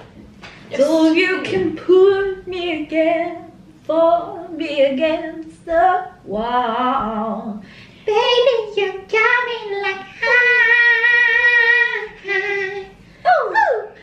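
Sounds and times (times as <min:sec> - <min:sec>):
woman singing unaccompanied: 0:00.7 - 0:14.0.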